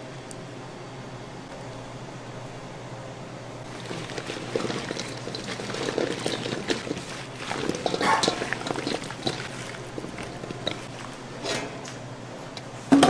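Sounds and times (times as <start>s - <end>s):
liquid pouring and splashing: 3.7s - 11.8s.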